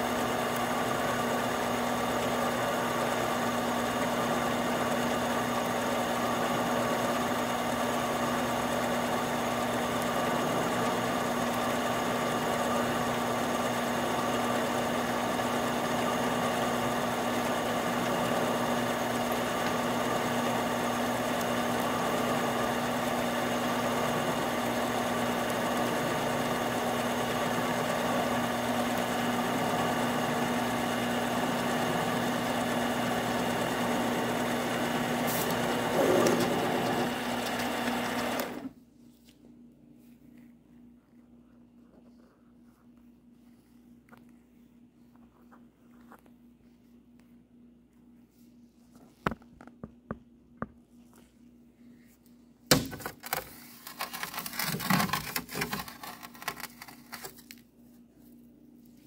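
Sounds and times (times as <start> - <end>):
lathe motor hum: 0.0 - 38.7
lathe cutting metal: 17.2 - 38.6.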